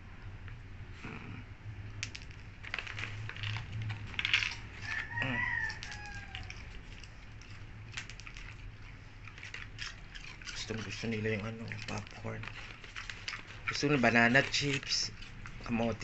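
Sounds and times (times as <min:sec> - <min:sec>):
dogs crunching popcorn: 0:02.0 - 0:16.0
rooster crowing: 0:04.8 - 0:06.8.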